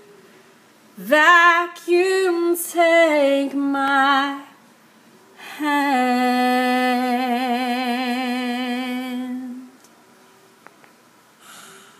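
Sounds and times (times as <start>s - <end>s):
woman singing a long note: 5.4s - 9.7s.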